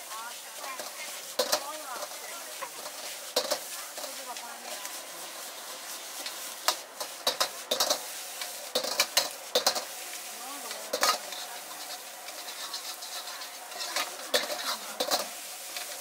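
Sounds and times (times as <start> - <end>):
rice sizzling in a wok: 0.0 - 16.0
steel ladle scraping and clanking: 6.2 - 9.9, 10.6 - 16.0.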